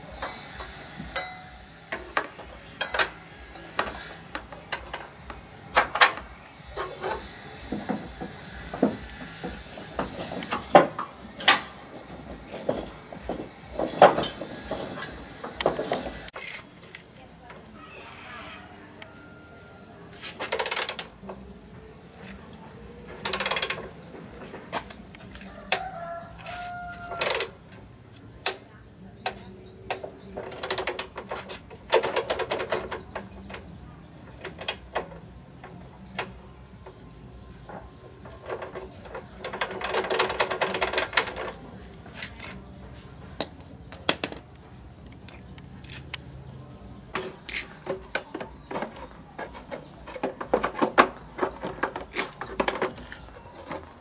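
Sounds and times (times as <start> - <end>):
birds chirping: 0.0 - 54.0
hand tools clinking on metal: 0.2 - 1.6, 2.8 - 5.1.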